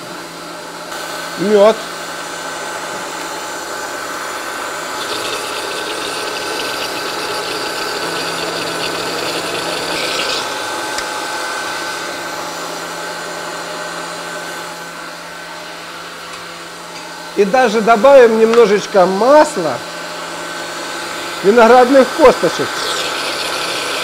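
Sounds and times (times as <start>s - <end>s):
blender motor whirring: 0.9s - 13.0s, 20.3s - 24.0s
bright grinding note: 5.0s - 10.6s.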